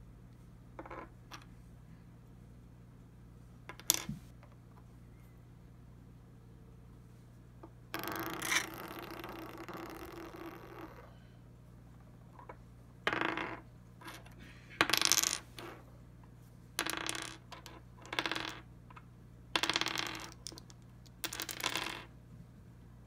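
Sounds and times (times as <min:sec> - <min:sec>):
dice clattering on wooden table: 0:00.8 - 0:01.5, 0:03.7 - 0:04.6, 0:07.9 - 0:11.0, 0:12.4 - 0:15.8, 0:16.8 - 0:18.7, 0:19.6 - 0:22.1.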